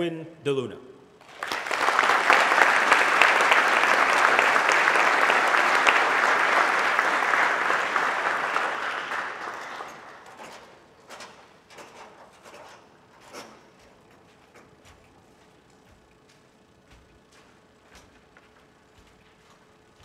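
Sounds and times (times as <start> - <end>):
audience applauding: 1.2 - 10.5.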